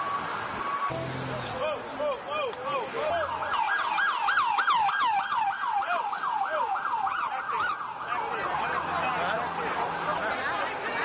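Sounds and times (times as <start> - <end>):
emergency siren yelping: 3.0 - 8.8.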